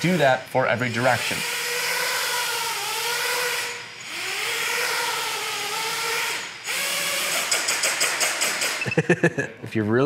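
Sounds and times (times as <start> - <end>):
drone motors and propellers whining: 0.8 - 7.8.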